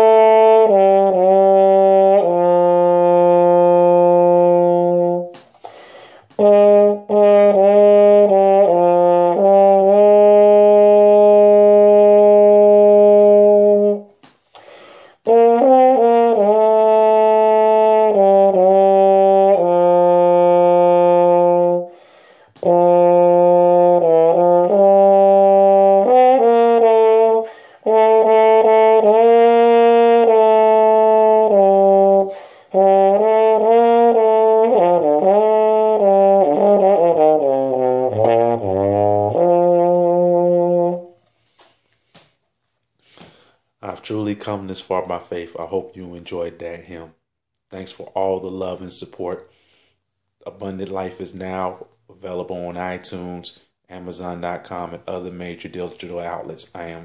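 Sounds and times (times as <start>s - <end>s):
muted trombone playing a hymn melody: 0.0s - 14.2s, 15.1s - 41.2s.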